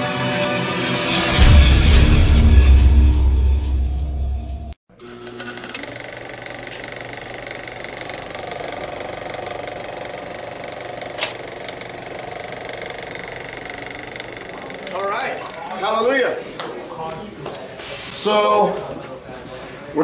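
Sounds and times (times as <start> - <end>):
mechanical hum and whir: 4.9 - 16.1.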